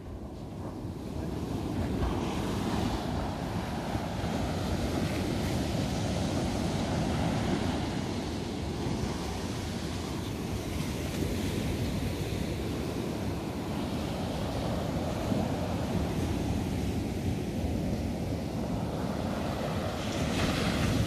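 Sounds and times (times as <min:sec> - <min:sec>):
ocean surf washing on beach: 0:00.0 - 0:21.0.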